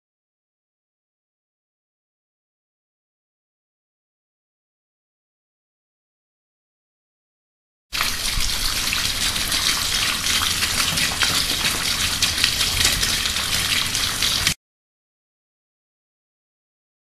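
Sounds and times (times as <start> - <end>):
tap water running into basin: 8.0 - 14.6.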